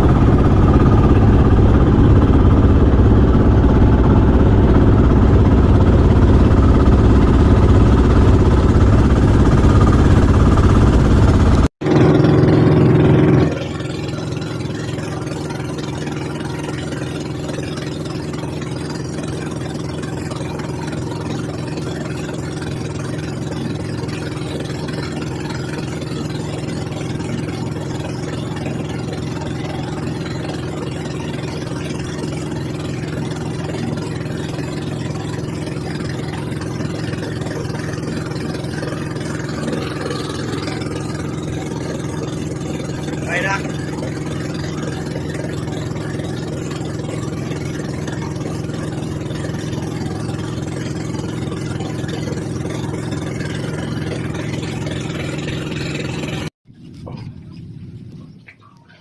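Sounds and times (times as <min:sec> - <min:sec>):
boat engine running: 0:00.0 - 0:59.0.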